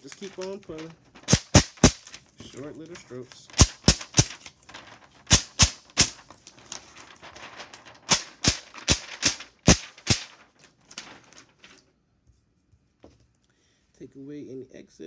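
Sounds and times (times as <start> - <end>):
plastic film peeling crackle: 0.0 - 11.9
plastic sheet rustling: 0.0 - 11.9.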